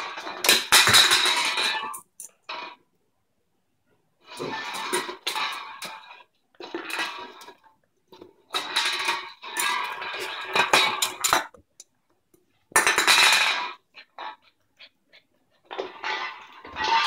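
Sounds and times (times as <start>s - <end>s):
can clattering on tile floor: 0.0s - 2.3s, 8.2s - 11.6s, 12.7s - 13.8s.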